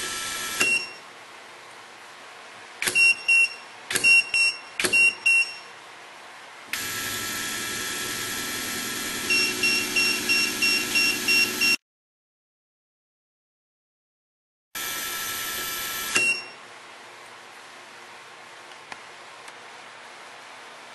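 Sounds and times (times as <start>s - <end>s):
double beep: 3.0s - 5.7s
fast repeating warning beep: 3.0s - 5.7s, 9.3s - 11.8s.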